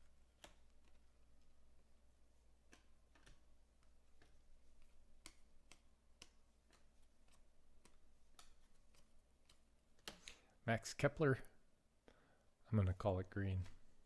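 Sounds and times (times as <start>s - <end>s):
cards flipping and snapping: 0.1s - 1.6s, 2.5s - 10.4s.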